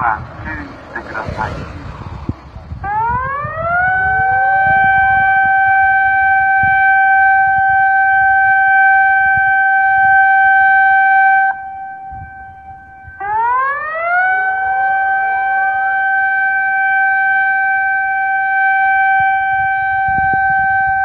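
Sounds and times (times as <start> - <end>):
warning siren: 0.0 - 21.0.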